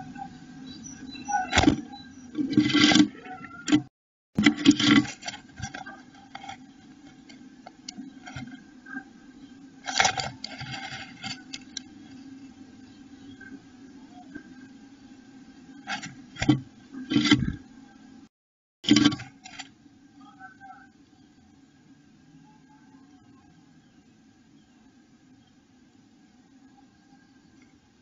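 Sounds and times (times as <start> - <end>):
bird rustling in nest box: 2.4 - 3.1, 4.4 - 8.6, 9.8 - 12.5, 18.8 - 19.7.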